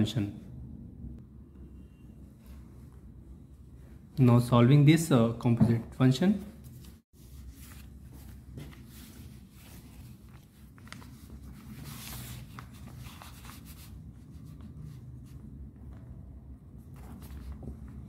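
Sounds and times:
paper rustling and sliding: 6.6 - 15.5, 16.8 - 18.0.

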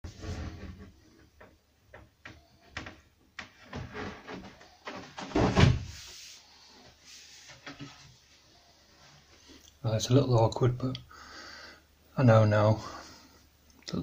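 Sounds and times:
wooden board knocking and scraping: 0.1 - 6.1.

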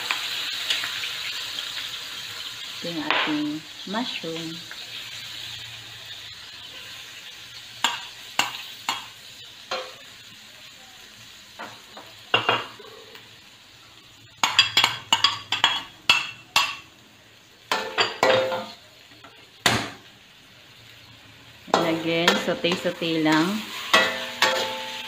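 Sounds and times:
light sizzle: 0.0 - 25.0
metal spatula scraping wok: 21.7 - 25.0.

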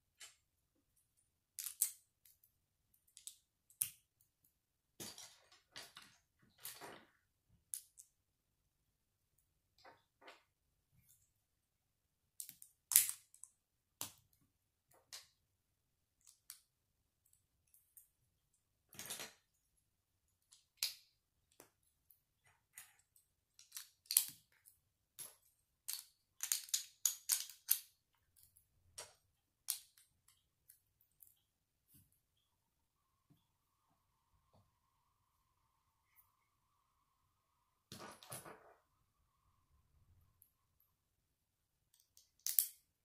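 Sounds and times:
plastic bricks clicking together: 22.7 - 24.6, 25.2 - 29.1, 41.9 - 42.8.

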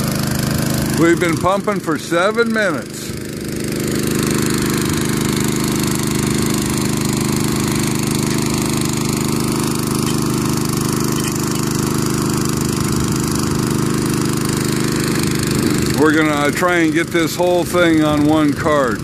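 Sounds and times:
engine-driven water pump running: 0.0 - 19.0.

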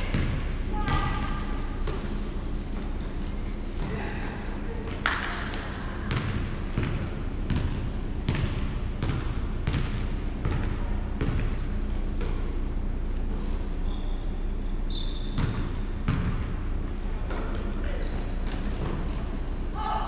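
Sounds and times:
basketball bouncing on hardwood floor: 6.1 - 11.6.

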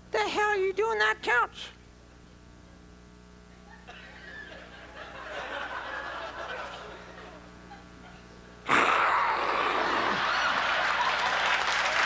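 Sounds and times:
faint low hum: 0.0 - 12.0
audience laughing: 3.6 - 8.4, 9.5 - 12.0.

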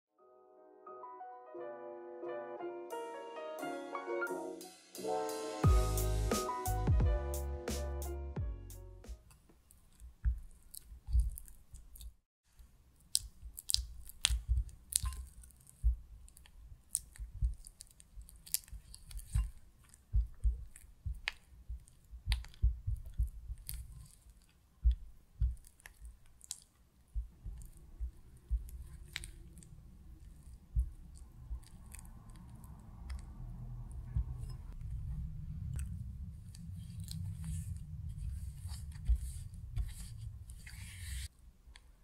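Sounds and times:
spatula squelching cream cheese: 9.7 - 34.8, 35.7 - 41.9.

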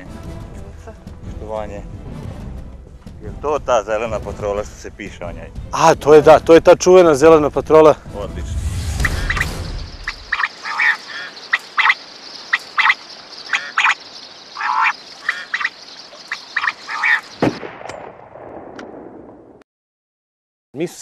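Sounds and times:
steady high hiss: 9.0 - 17.3
short animal calls: 10.1 - 12.0, 12.7 - 14.0, 14.6 - 17.3.

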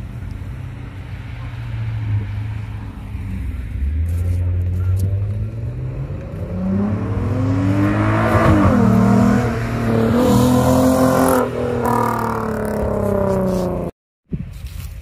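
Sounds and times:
car engine accelerating hard: 3.2 - 13.9.

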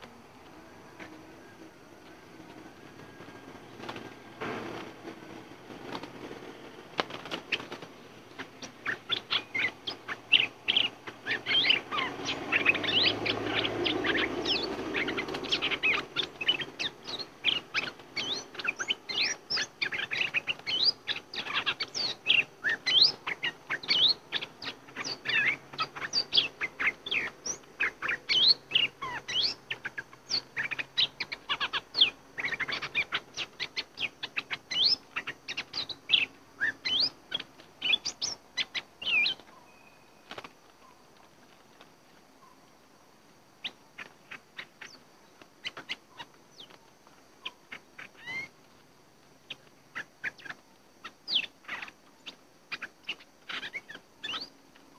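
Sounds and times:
rustling flutter: 0.0 - 21.9
birds chirping: 0.0 - 54.9.

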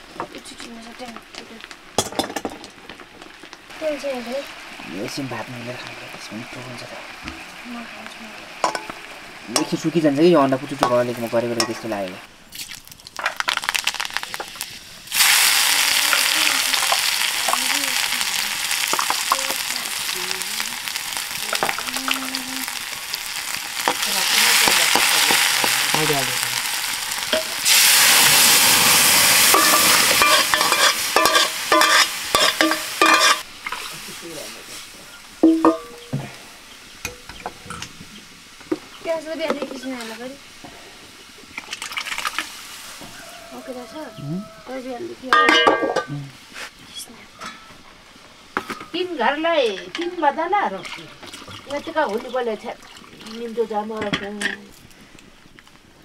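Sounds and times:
eggs sizzling in hot oil: 0.0 - 56.0.

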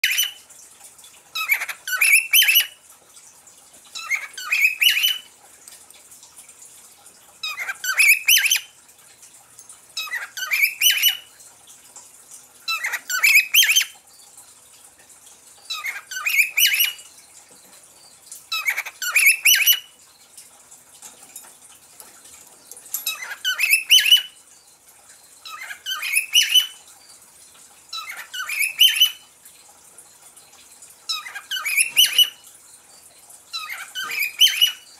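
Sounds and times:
faint steady hiss: 0.0 - 34.9
cockatiel chirping: 1.4 - 2.7, 4.0 - 5.2, 15.7 - 17.0, 18.5 - 19.8, 23.1 - 24.3, 28.0 - 29.2, 31.1 - 32.3, 33.5 - 34.8.

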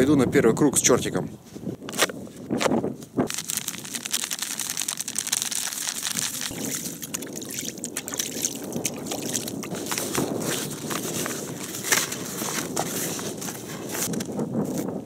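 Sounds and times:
wet crackling: 3.3 - 12.6
water sloshing in bucket: 3.6 - 11.0.

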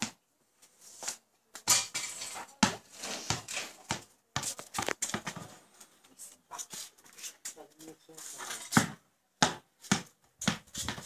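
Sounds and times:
basketball thudding on concrete: 0.0 - 0.2, 2.6 - 5.5, 8.6 - 11.0.

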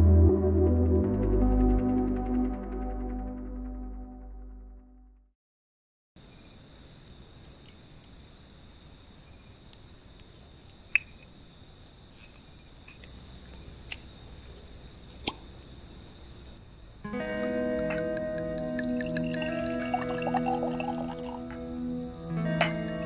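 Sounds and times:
night insects chorus: 6.2 - 23.0
campfire popping: 12.9 - 16.0, 17.7 - 21.4.

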